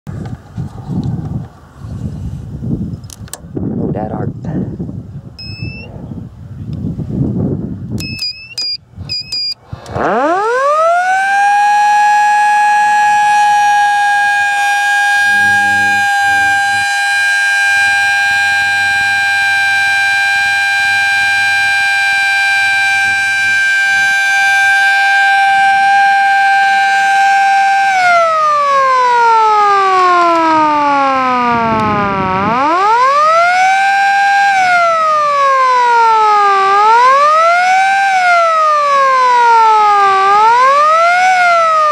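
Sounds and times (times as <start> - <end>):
fire siren wailing: 9.8 - 41.9.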